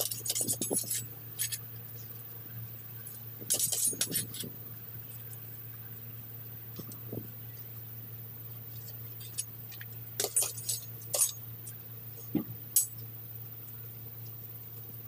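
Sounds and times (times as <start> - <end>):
metal blade scraping concrete: 0.0 - 1.6, 3.5 - 4.4, 10.2 - 11.4.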